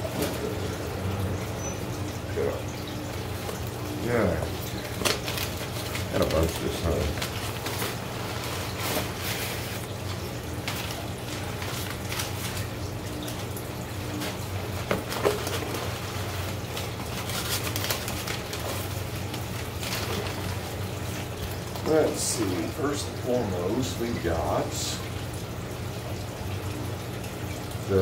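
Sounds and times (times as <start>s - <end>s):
low equipment hum: 0.0s - 28.0s
trickling water: 0.0s - 28.0s
cardboard and packing rustling: 4.8s - 12.7s, 14.1s - 21.9s.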